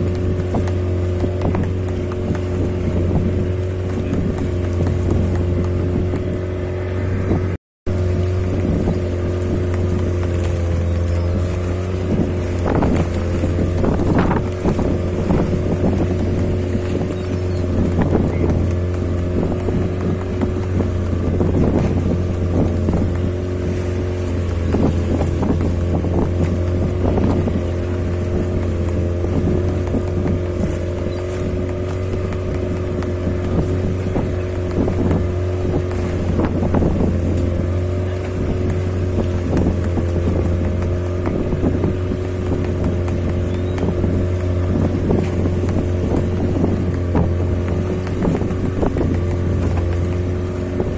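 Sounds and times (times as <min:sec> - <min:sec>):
boat engine humming: 0:00.0 - 0:50.9.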